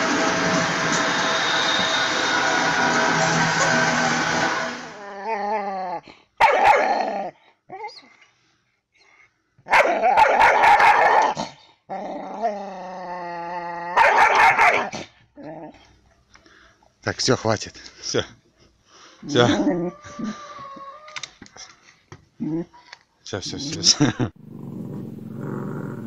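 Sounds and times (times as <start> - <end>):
steady noise: 0.0 - 5.0
dog growling and growl-barking: 5.0 - 7.9, 9.7 - 15.9, 19.3 - 21.1, 24.4 - 26.0
dog whining: 7.7 - 8.2, 19.4 - 21.3.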